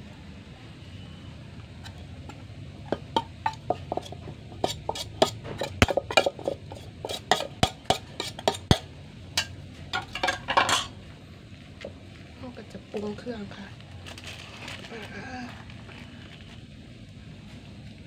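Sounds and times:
scraping plate: 0:02.9 - 0:08.8
clinks on ceramic plate: 0:09.4 - 0:11.0.

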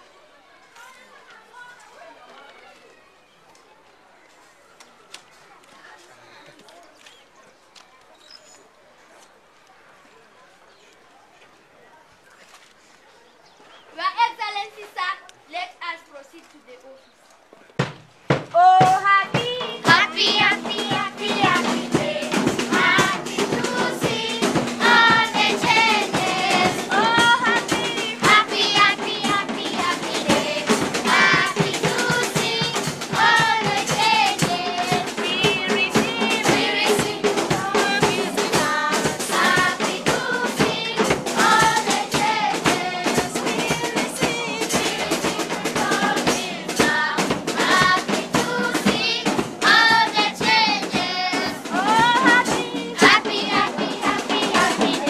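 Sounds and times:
steady drumming: 0:17.8 - 0:55.0
children singing in chorus: 0:19.4 - 0:55.0.

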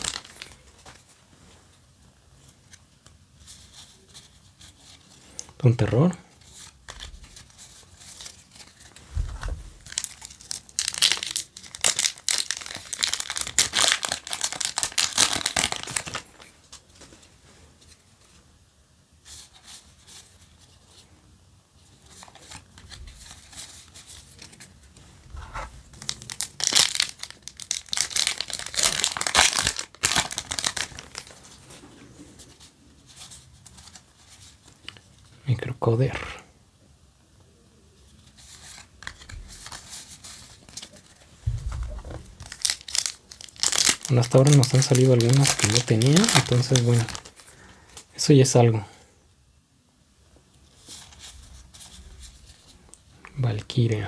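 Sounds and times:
foil wrapper crinkling and tearing: 0:00.0 - 0:00.6, 0:09.8 - 0:16.5, 0:25.9 - 0:31.4, 0:42.3 - 0:48.0
trading cards rustling: 0:00.0 - 0:01.1, 0:03.4 - 0:17.2, 0:21.9 - 0:35.0, 0:38.1 - 0:48.1.

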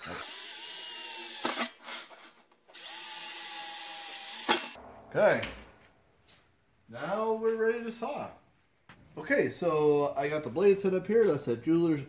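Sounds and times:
cordless drill boring sheet steel: 0:00.0 - 0:04.8.

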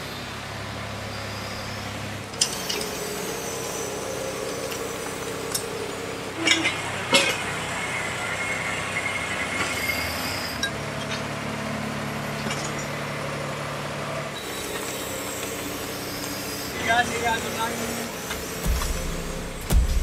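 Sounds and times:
garbage truck mechanical hum: 0:00.0 - 0:20.0
deep strong hum: 0:02.3 - 0:09.6, 0:18.1 - 0:20.0.

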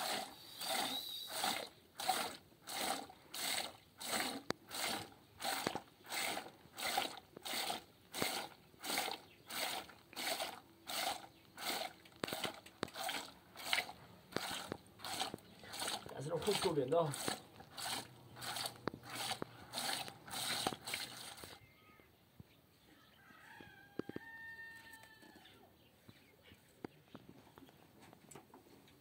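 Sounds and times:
milk squirting into plastic bucket: 0:00.0 - 0:21.6.

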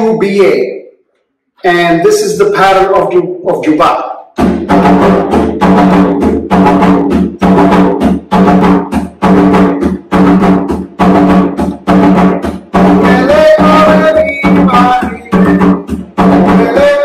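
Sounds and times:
barrel drum played by hand: 0:04.4 - 0:17.0.

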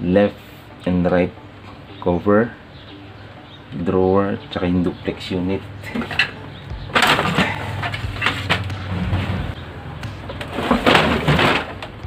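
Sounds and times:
plastic rattling and knocks: 0:07.0 - 0:09.2, 0:10.4 - 0:12.0
plastic printer tray scraping: 0:07.0 - 0:09.6, 0:10.4 - 0:11.8.

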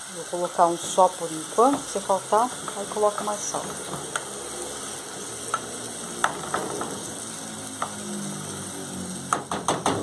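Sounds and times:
meat sizzling in a pan: 0:00.0 - 0:10.0
spatula clicking and scraping pan: 0:00.8 - 0:07.2, 0:07.8 - 0:08.0.

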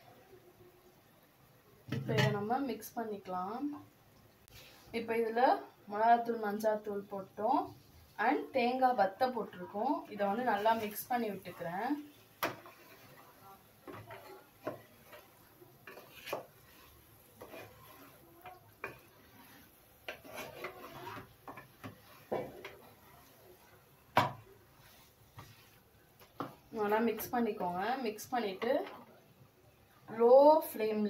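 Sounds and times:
spatula scraping a pot: 0:09.8 - 0:23.8, 0:24.7 - 0:27.3.

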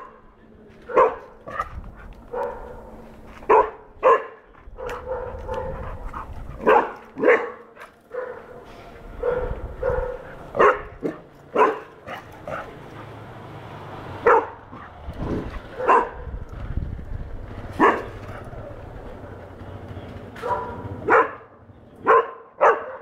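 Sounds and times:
puppy barking: 0:00.8 - 0:13.2, 0:14.2 - 0:16.4, 0:17.7 - 0:18.8, 0:20.4 - 0:23.0.

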